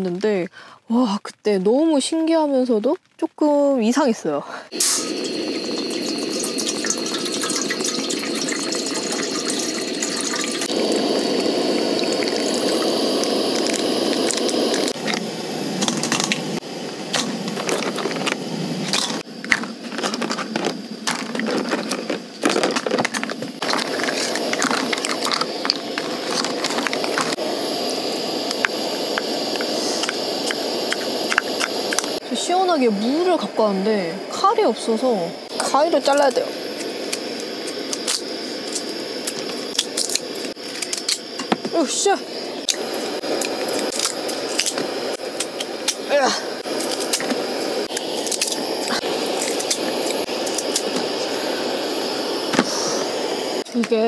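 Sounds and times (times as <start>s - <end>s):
water pouring into metal pot: 4.8s - 15.0s.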